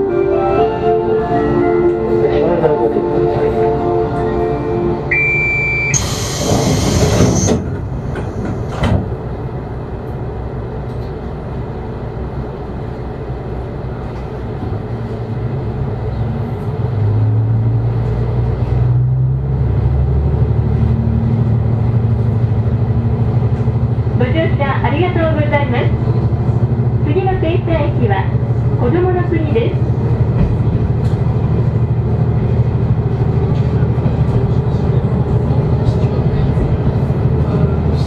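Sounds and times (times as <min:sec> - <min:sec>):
diesel train engine: 0:00.0 - 0:38.0
click: 0:10.8 - 0:11.2.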